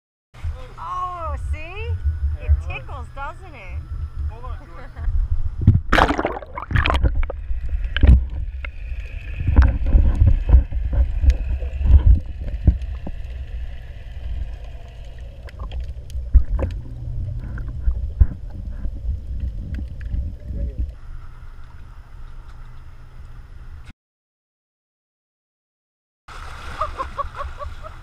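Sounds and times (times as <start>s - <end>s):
muffled underwater rumble: 0.4s - 23.9s
underwater knocks and splashes: 5.1s - 21.0s.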